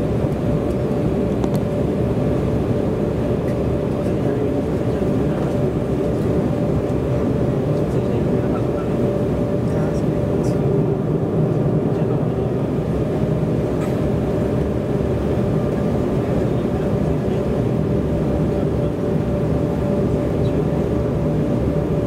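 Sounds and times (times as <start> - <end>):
jet engine cabin drone: 0.0 - 22.0.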